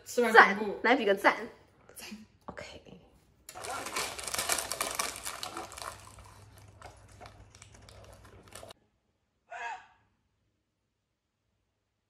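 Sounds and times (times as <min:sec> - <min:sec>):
paper snack bags crinkling: 0:03.5 - 0:08.8.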